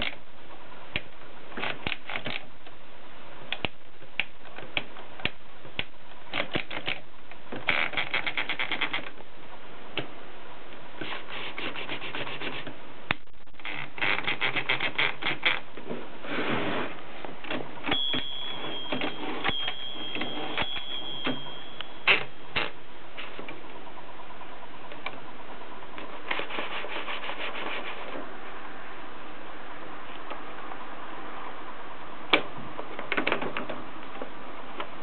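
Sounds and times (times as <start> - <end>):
typewriter mechanism clicks: 1.6 - 2.5, 4.4 - 7.0
typewriter platen ratchet clicks: 1.6 - 2.5, 6.3 - 7.0, 7.6 - 9.1
carriage rubbing slide: 11.0 - 12.8, 13.7 - 15.6, 16.2 - 17.0, 26.1 - 28.2
thin high squeak: 17.9 - 23.4.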